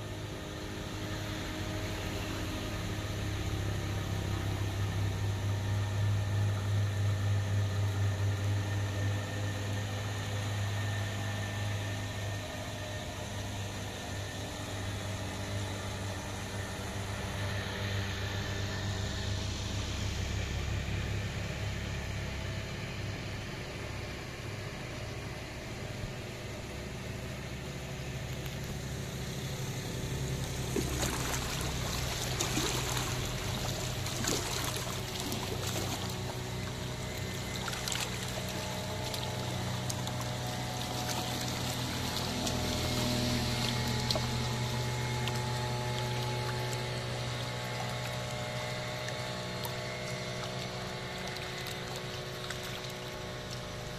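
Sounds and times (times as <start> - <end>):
boat motor humming: 0.0 - 53.9
water splashing and trickling: 30.4 - 53.9.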